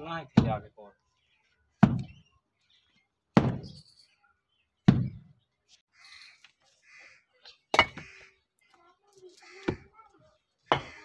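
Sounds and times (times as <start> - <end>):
brick struck with dull knocks: 0.3 - 0.6, 1.8 - 2.2, 3.3 - 3.8, 4.8 - 5.3, 7.7 - 8.1.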